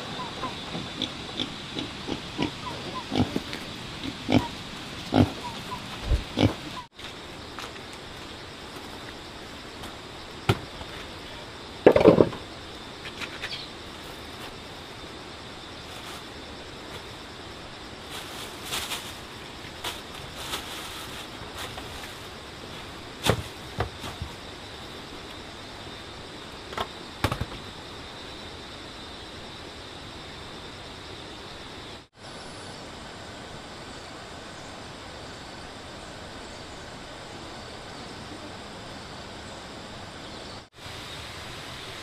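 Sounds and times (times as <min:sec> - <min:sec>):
pigs grunting: 0:00.0 - 0:06.9.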